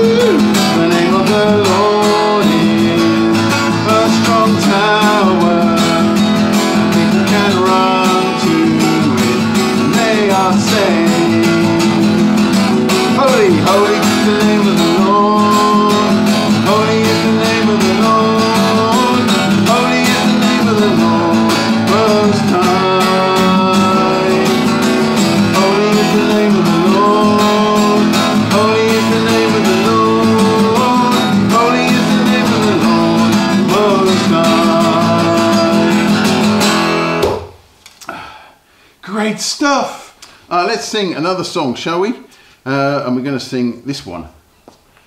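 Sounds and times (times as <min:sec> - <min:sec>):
man singing: 0:00.0 - 0:37.2
acoustic guitar strumming: 0:00.0 - 0:37.8.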